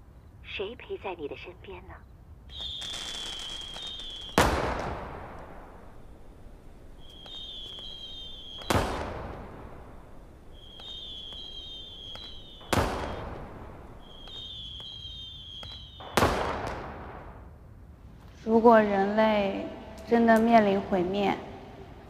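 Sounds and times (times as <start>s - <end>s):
firework bang with crackling: 2.5s - 17.5s
whistling firework rockets: 2.5s - 17.6s.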